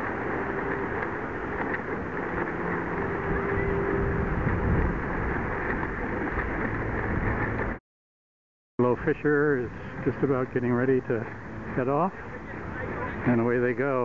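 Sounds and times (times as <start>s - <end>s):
faint hum: 0.0s - 7.7s
small waves washing on beach: 0.0s - 7.8s, 8.8s - 14.0s
wind on microphone: 0.0s - 7.8s.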